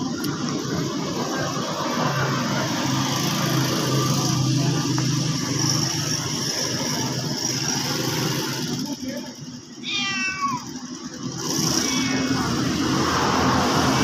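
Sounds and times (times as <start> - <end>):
engine humming steadily: 0.0 - 14.0.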